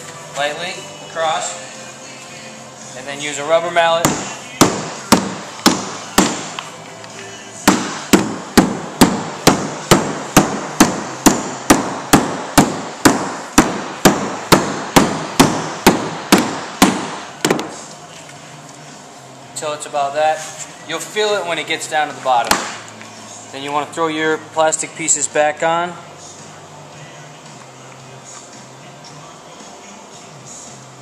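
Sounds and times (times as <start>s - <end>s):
rubber mallet knocking on metal: 4.0s - 6.6s, 7.7s - 17.7s.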